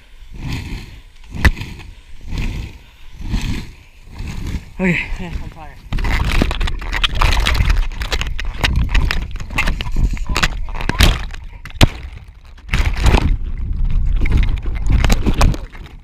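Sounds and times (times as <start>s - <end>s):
water balloons squeaking and knocking: 5.9s - 16.0s.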